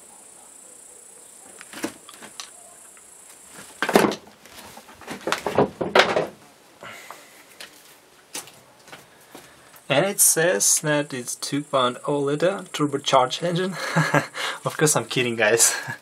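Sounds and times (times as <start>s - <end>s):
knocks of objects being handled: 3.6s - 6.4s.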